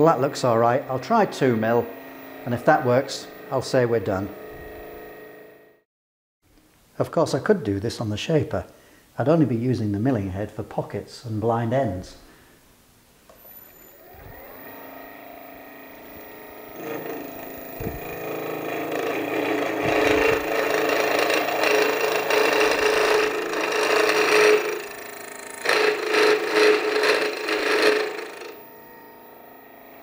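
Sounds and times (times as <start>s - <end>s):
milling spindle running: 0.0s - 5.7s, 13.6s - 30.0s.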